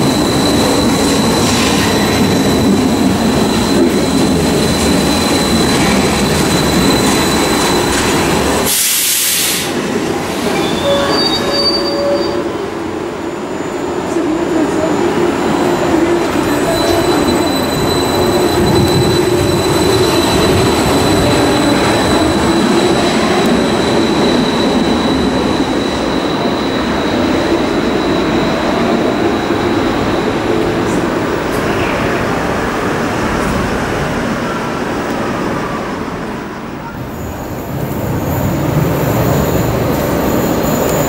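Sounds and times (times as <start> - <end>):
train wheels rumbling on rail: 0.0 - 41.0.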